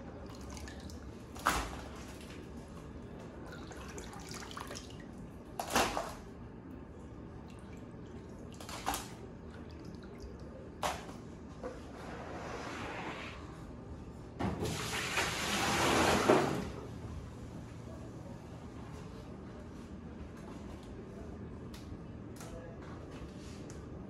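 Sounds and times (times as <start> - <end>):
water sloshing in a plastic tub: 0.0 - 6.4, 7.2 - 11.9.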